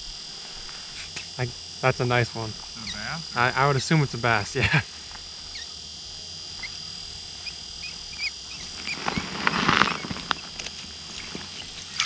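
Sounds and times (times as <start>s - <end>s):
splashing rustle: 8.6s - 12.0s.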